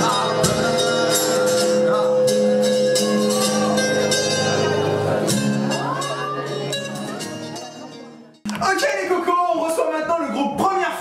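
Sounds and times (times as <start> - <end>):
drums: 0.0 - 7.6
strummed acoustic guitar: 0.0 - 9.2.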